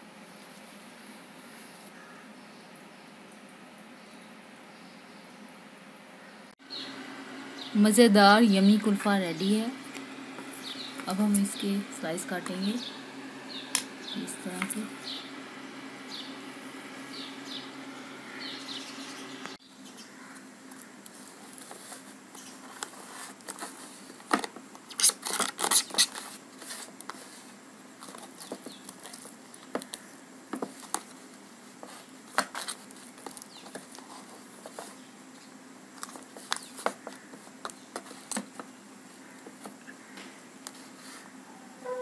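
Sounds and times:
steady hum: 0.0 - 25.0
knife scraping frozen dessert: 24.9 - 30.1.

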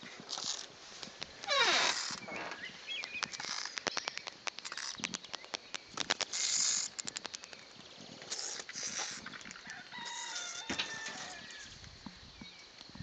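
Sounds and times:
bat claws clicking on tiles: 3.2 - 9.8
rooster crowing: 9.6 - 11.7.

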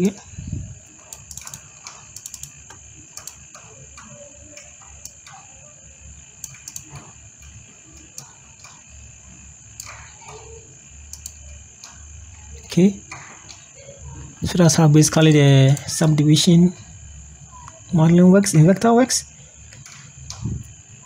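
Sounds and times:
high-pitched whine: 0.0 - 21.0
computer mouse clicks: 0.9 - 5.4, 6.4 - 8.9, 9.8 - 10.4, 11.1 - 12.0.

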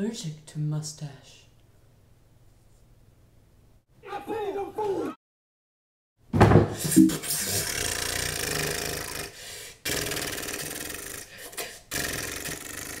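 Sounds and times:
toe knocking into furniture: 6.3 - 7.1.

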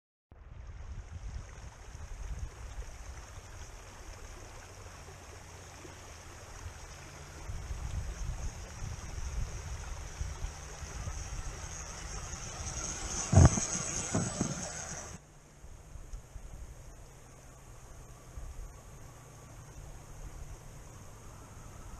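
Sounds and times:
creek rippling over rocks: 0.4 - 21.9
wind rumbling on microphone: 0.4 - 21.9
toy truck splashing through water: 7.0 - 15.2.

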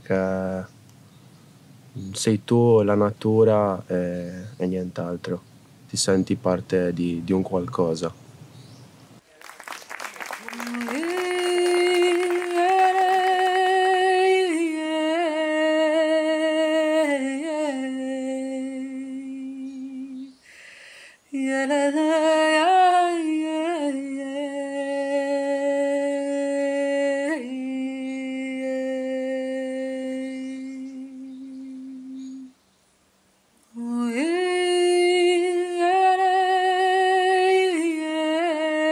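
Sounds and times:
person singing wordless melody: 10.4 - 32.6, 33.6 - 38.9.

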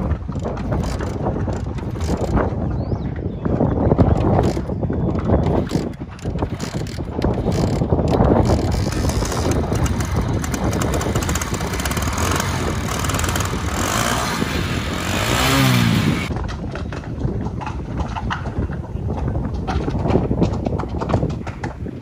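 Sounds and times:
dense rumbling noise: 0.0 - 21.7
vehicle engine running: 5.5 - 16.3.

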